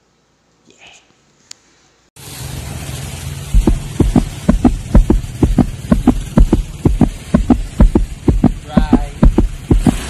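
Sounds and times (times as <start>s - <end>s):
low steady hum: 3.6s - 10.0s
pulsing beat of deep thumps: 3.6s - 10.0s.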